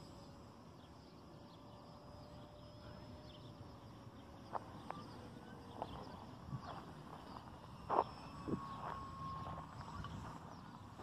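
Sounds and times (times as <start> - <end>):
electric model airplane motor whine: 0.0 - 11.0
faint high chirps: 0.0 - 11.0.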